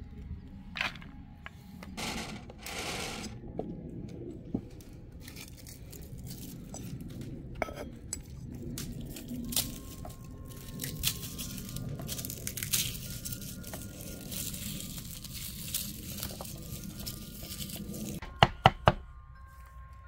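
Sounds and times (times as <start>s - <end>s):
garlic skins crackling and tearing: 5.1s - 18.2s.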